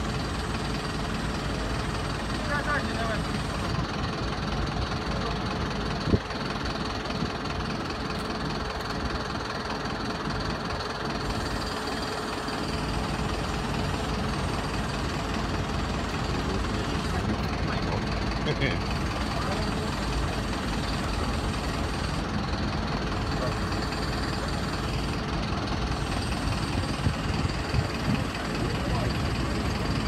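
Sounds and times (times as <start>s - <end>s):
diesel engine idling: 0.0s - 30.0s.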